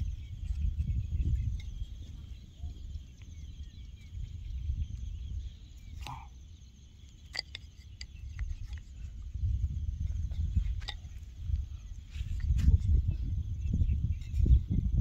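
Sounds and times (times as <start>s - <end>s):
insect chirring: 0.0s - 15.0s
wind rumble on microphone: 0.0s - 15.0s
wooden sticks clicking: 7.3s - 9.0s.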